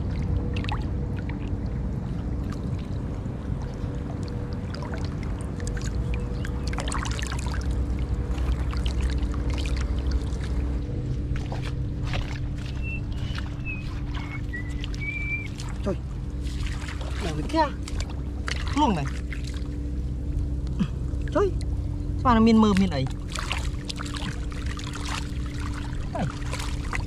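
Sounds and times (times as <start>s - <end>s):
faint hum: 0.0s - 27.0s
low rumble: 0.0s - 27.0s
fish splashing in water: 4.2s - 10.7s, 11.4s - 19.8s, 23.0s - 27.0s.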